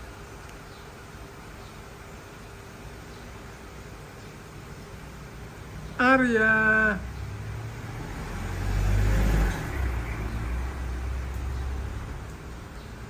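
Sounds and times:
passing vehicle engine rumble: 0:05.0 - 0:13.0.

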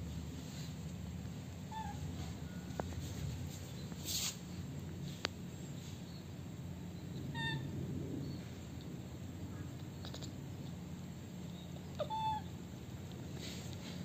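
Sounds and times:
steady low hum: 0:00.0 - 0:14.0
baby monkey squeaky calls: 0:01.7 - 0:02.1, 0:12.0 - 0:12.5.

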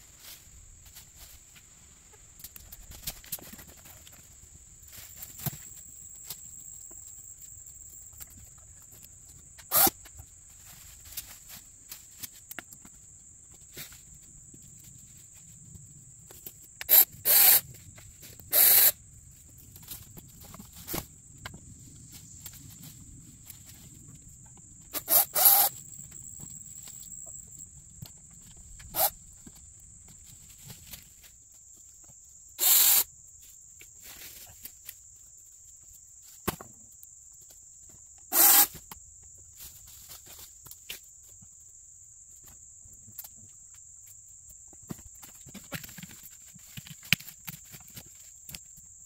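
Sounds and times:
high-pitched insect buzz: 0:09.7 - 0:10.0, 0:16.8 - 0:17.7, 0:18.5 - 0:19.0, 0:24.9 - 0:27.7, 0:28.9 - 0:29.2, 0:32.6 - 0:33.1, 0:38.3 - 0:38.8.

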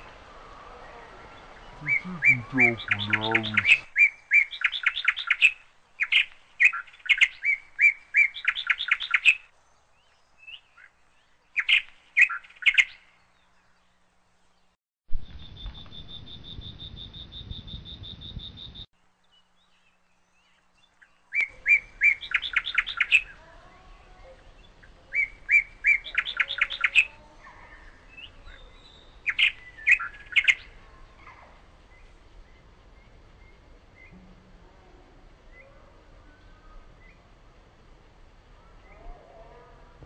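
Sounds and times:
songbird singing phrase: 0:00.8 - 0:14.7, 0:15.4 - 0:37.4
high rapid bird trill: 0:01.8 - 0:06.8.

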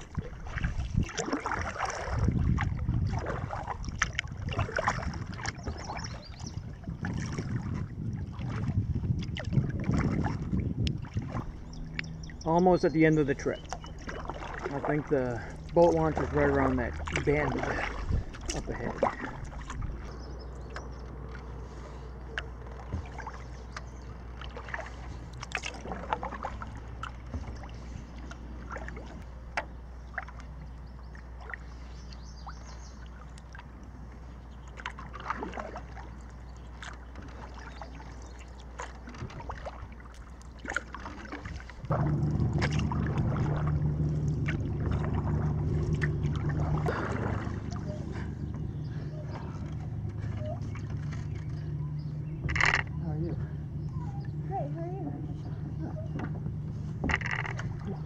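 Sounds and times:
low steady rumble: 0:00.0 - 0:58.0
paddle splashing water: 0:00.0 - 0:58.0
loud droning hum: 0:11.1 - 0:31.9, 0:41.9 - 0:58.0.

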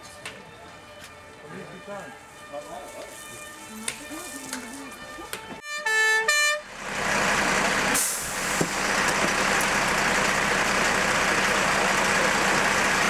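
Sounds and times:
fire engine running: 0:04.0 - 0:13.0.

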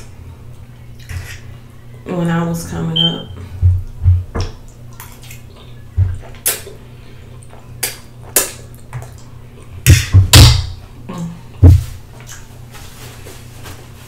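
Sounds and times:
lip smacks: 0:04.9 - 0:06.8, 0:07.4 - 0:09.3.

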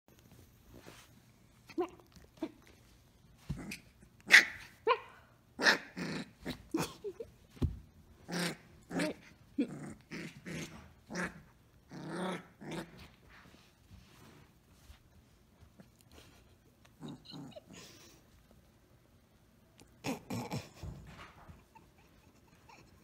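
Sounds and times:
puppy growling: 0:08.2 - 0:13.1, 0:16.8 - 0:18.2, 0:19.8 - 0:21.3.

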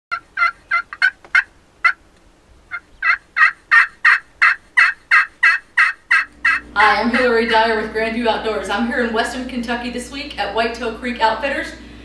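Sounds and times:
turkey yelping: 0:00.1 - 0:02.0, 0:02.7 - 0:07.5.

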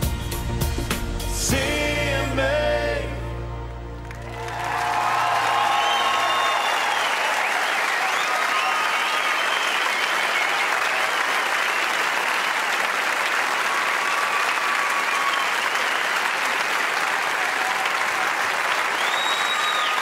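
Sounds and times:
audience applauding: 0:04.0 - 0:20.0
whistles: 0:05.4 - 0:12.5, 0:13.8 - 0:16.4, 0:18.9 - 0:20.0.

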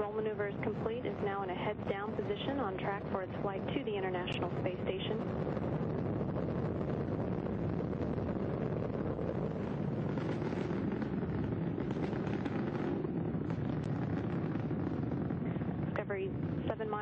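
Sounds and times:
rocket launch roar: 0:00.0 - 0:16.8.

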